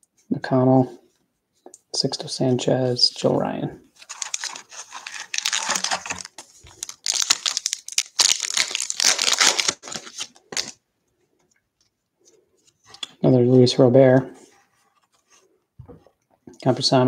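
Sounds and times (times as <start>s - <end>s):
plastic wrapper crinkling: 4.0s - 10.8s
wrapper tearing open: 4.0s - 10.8s.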